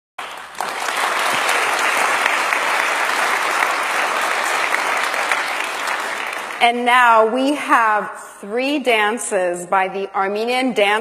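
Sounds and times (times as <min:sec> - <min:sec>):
audience applauding: 0:00.2 - 0:06.6.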